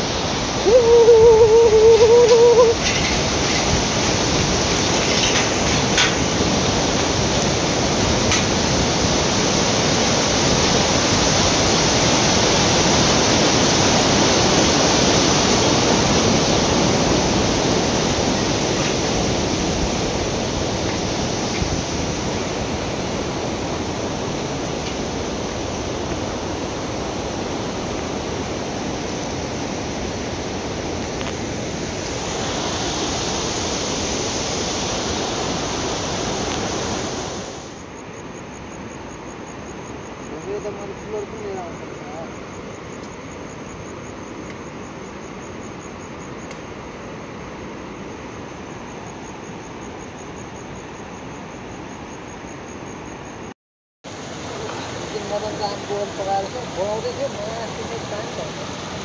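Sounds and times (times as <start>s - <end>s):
river rushing over rocks: 0.0s - 37.9s, 54.1s - 59.0s.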